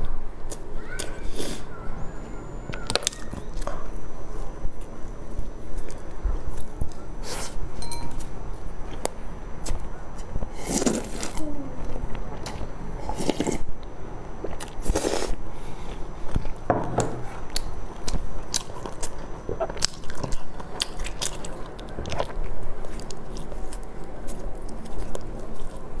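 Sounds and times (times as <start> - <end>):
biting and chewing: 14.4 - 26.0.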